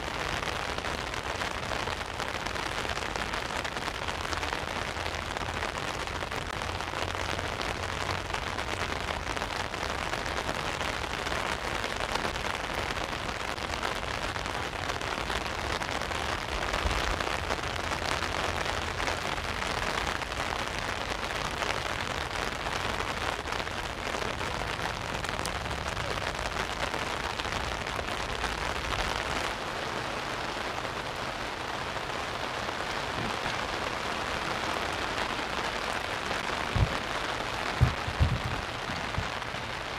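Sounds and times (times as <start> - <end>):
heavy rain on an umbrella: 0.0 - 39.9
rain falling on the sea: 0.0 - 39.9
low rumble: 37.8 - 39.5.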